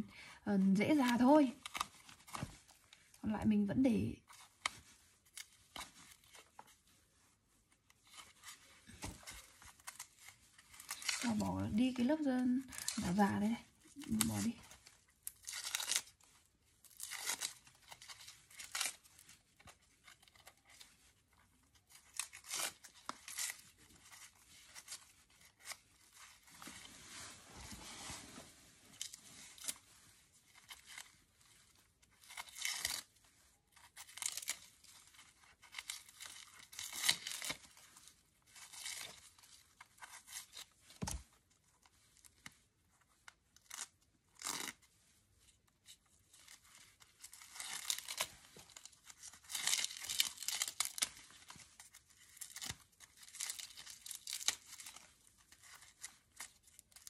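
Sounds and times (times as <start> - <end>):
dry bulb scales crackling and tearing: 0.8 - 2.5, 8.0 - 21.0, 21.6 - 26.6, 30.5 - 41.2, 43.6 - 44.9, 46.3 - 57.0.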